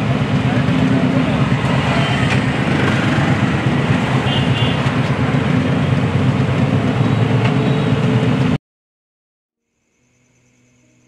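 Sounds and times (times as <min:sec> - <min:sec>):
city road traffic rumble: 0:00.0 - 0:08.6.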